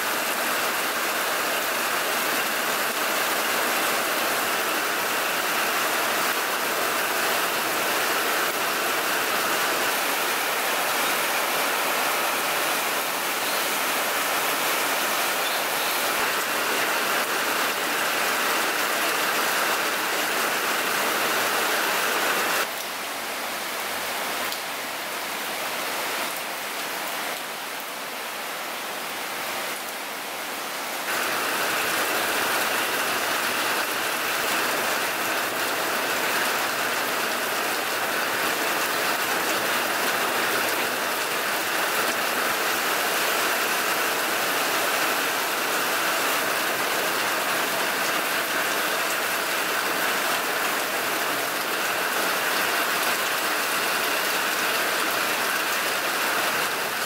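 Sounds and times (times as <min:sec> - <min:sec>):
heavy rain on pond water: 0:00.0 - 0:57.0.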